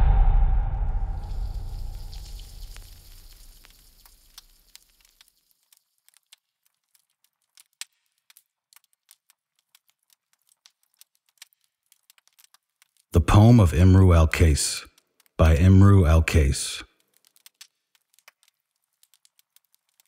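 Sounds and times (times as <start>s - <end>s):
faint crackles and clicks: 1.3s - 13.2s, 14.8s - 15.4s, 16.8s - 20.0s.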